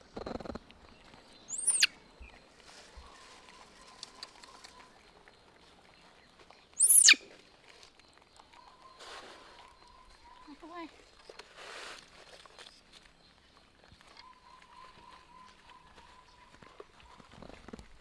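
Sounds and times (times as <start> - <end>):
baby monkey squealing: 1.5 - 1.9, 6.8 - 7.2.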